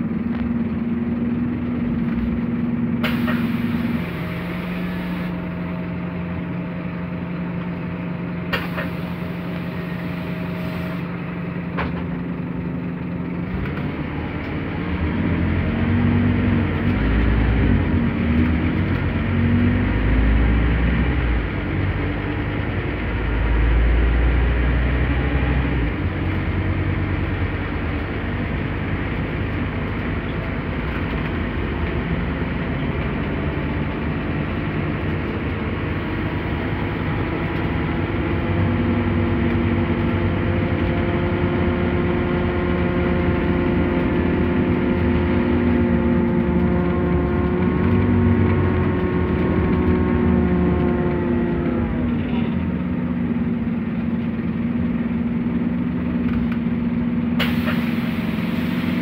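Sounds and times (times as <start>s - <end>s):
bus diesel engine droning: 0.0s - 59.0s
air hiss: 57.4s - 59.0s.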